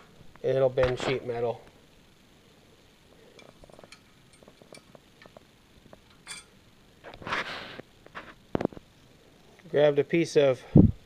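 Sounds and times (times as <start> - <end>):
metal clicks and clinks: 3.4 - 5.4, 6.1 - 6.6.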